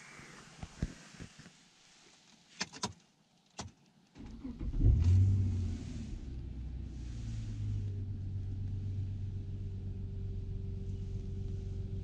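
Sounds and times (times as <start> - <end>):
ignition clicks: 3.6 - 5.6
car engine starting and idling: 4.2 - 12.0.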